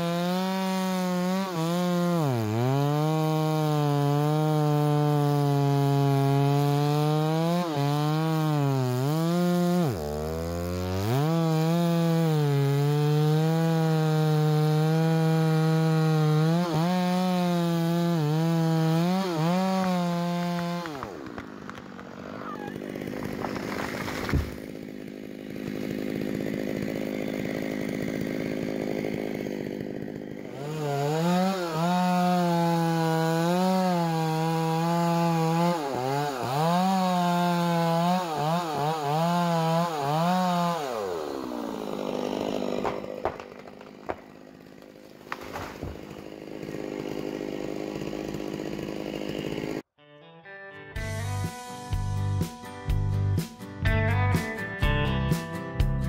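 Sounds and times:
chainsaw cutting at full throttle: 0:00.0 - 0:49.9
tree crashing to ground: 0:19.5 - 0:30.3, 0:42.3 - 0:47.6.

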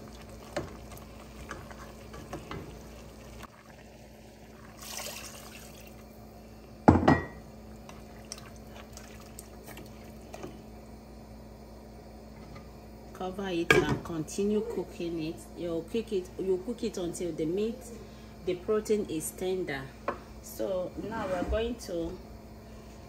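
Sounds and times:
water poured into a pot: 0:00.0 - 0:06.0, 0:07.9 - 0:10.2.

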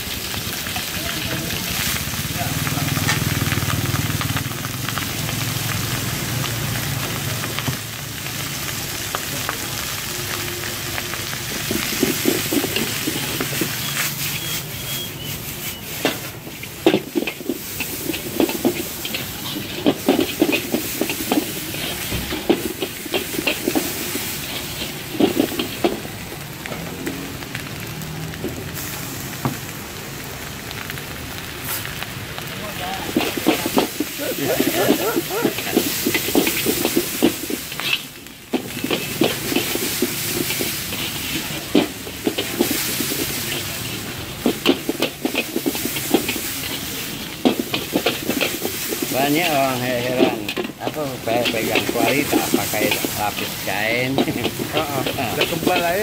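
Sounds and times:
rice and greens sizzling in wok: 0:00.0 - 0:56.0
metal spatula scraping and clanking: 0:11.6 - 0:26.1, 0:33.1 - 0:56.0.

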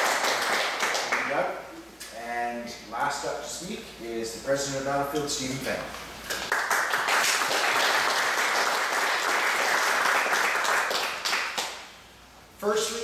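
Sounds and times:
audience applauding: 0:00.0 - 0:01.3, 0:06.3 - 0:11.8.

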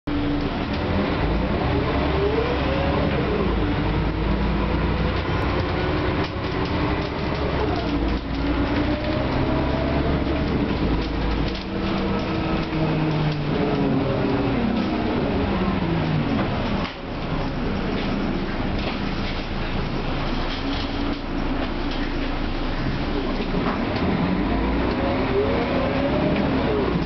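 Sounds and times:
bus engine low rumble: 0:00.1 - 0:27.0
engine and transmission whine: 0:00.1 - 0:27.0.

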